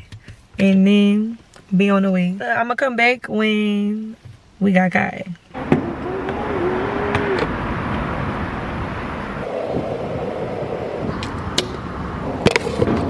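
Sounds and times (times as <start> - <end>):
traffic noise: 5.5 - 13.0
faint hum: 5.6 - 12.2.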